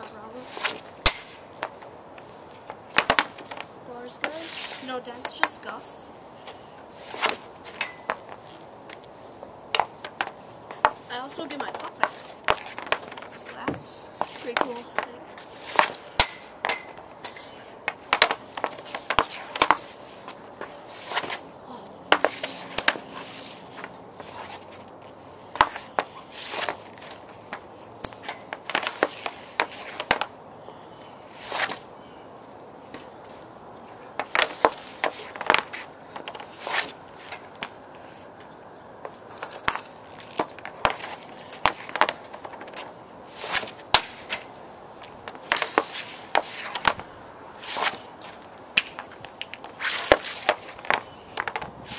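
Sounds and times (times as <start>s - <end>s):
hockey stick scraping pad: 0.0s - 9.1s, 9.7s - 21.5s, 22.1s - 30.4s, 31.0s - 31.9s, 32.9s - 51.9s
pucks clacking when struck: 0.6s - 1.9s, 2.6s - 4.4s, 9.7s - 15.1s, 15.7s - 21.4s, 25.5s - 30.4s, 34.1s - 37.8s, 39.3s - 47.0s, 47.7s - 51.7s.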